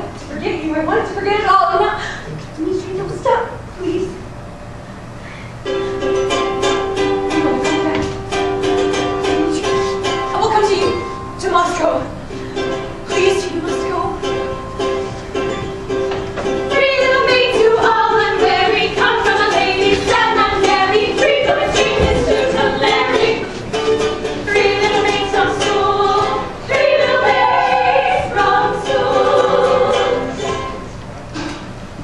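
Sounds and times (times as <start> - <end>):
plucked string accompaniment: 5.6 - 32.0
group of voices singing: 16.7 - 23.7, 24.4 - 30.8.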